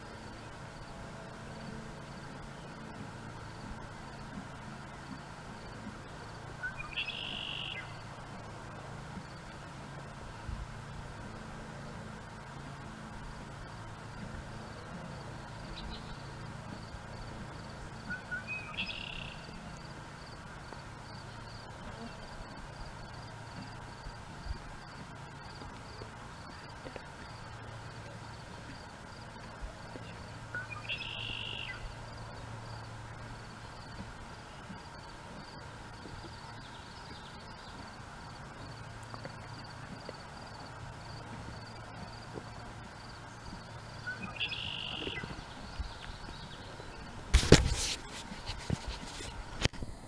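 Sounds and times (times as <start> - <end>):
low steady hum: 0.0 - 50.0
steady background hiss: 0.0 - 50.0
faint high chirp: 6.6 - 8.0, 18.1 - 19.6, 30.5 - 31.8, 44.0 - 47.0.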